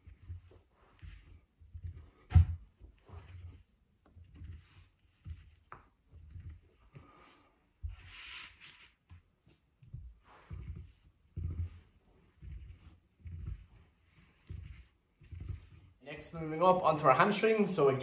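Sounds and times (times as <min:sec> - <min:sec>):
hissing rub: 0:00.0 - 0:09.2, 0:09.8 - 0:16.4
foam roller rubbing on floor: 0:00.0 - 0:17.8.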